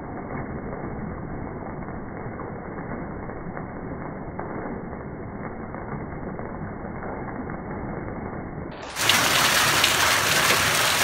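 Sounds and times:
hailstones pattering on ground: 8.9 - 11.0.

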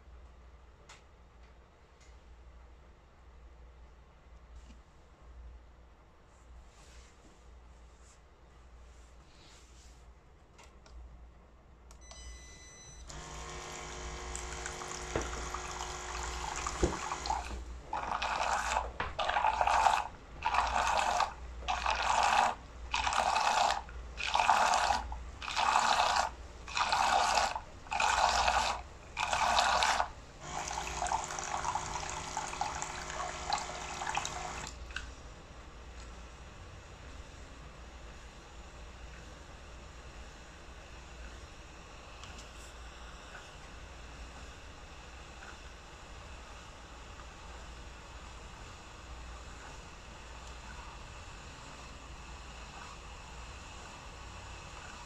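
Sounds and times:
short beep: 12.0 - 13.1
coffee machine pump running: 13.0 - 35.1, 47.1 - 55.0.

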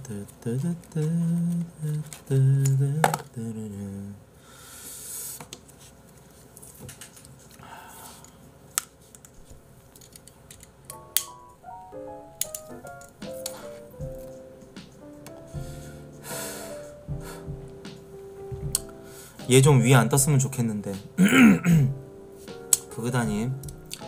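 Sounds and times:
light music notes: 10.9 - 24.0
man's voice: 19.4 - 21.9, 22.9 - 23.6.

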